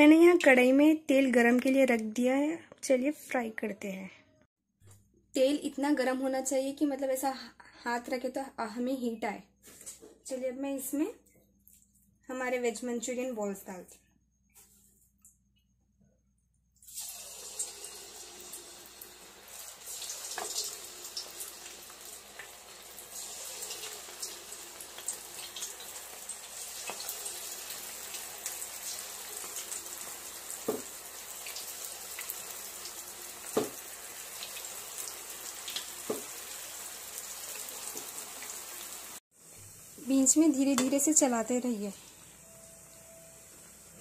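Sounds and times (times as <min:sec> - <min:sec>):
oil sizzling: 0:16.8 - 0:44.0.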